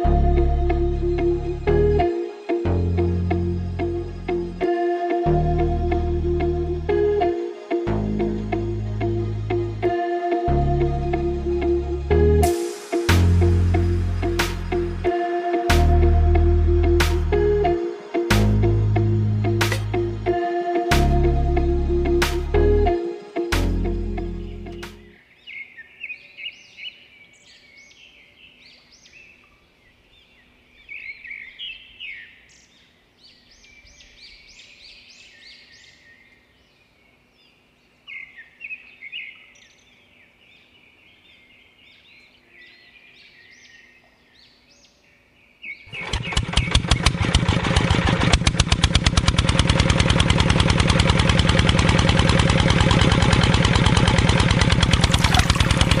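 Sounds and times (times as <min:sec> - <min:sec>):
birds chirping: 0:00.0 - 0:47.2, 0:55.0 - 0:56.0
small engine pulsing: 0:45.9 - 0:56.0.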